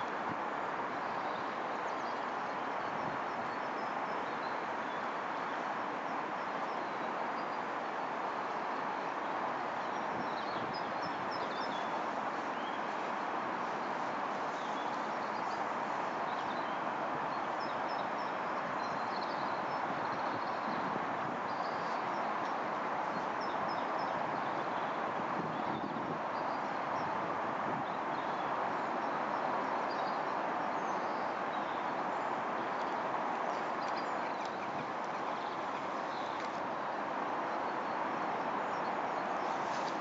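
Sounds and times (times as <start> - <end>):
outdoor background hiss: 0.0 - 40.0
small birds chirping: 27.9 - 36.8.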